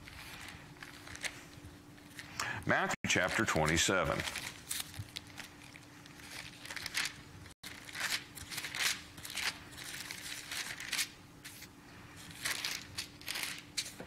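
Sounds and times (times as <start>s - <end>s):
faint steady hum: 0.0s - 14.0s
thin pages rustling: 4.1s - 14.0s.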